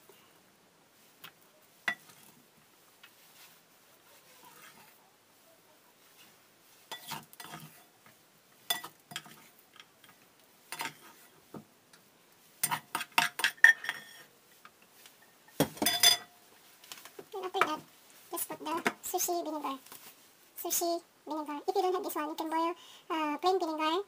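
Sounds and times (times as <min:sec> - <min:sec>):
rice paddle scraping pot: 0:04.3 - 0:05.0, 0:06.1 - 0:08.0, 0:08.7 - 0:11.4.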